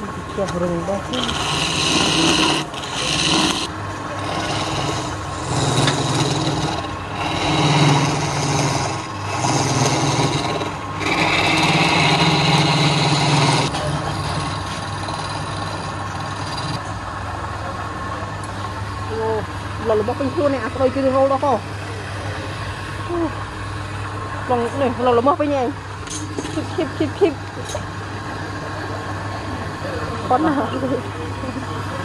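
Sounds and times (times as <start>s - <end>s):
chisel cutting spinning wood: 1.0s - 16.8s
wood lathe motor humming: 1.0s - 16.8s.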